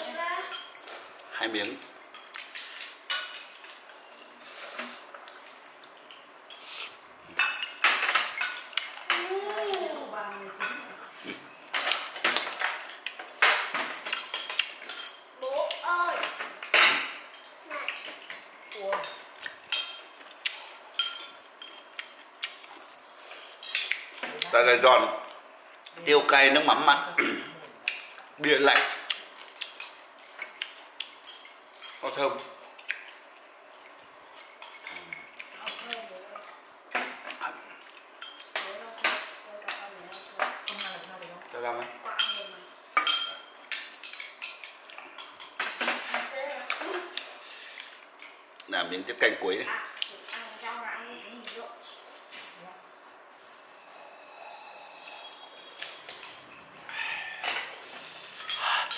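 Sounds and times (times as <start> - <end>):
utensils clinking against dishes: 0.3 - 9.6, 11.7 - 22.2, 22.8 - 25.4, 28.7 - 32.6, 34.4 - 36.0, 38.2 - 41.2, 42.1 - 48.4, 51.8 - 52.2, 55.0 - 56.5, 57.4 - 58.9.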